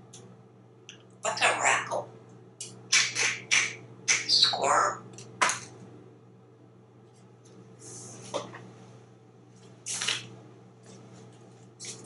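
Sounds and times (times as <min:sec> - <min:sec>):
parrot squawking and chirping: 0:01.2 - 0:02.1, 0:02.9 - 0:05.0.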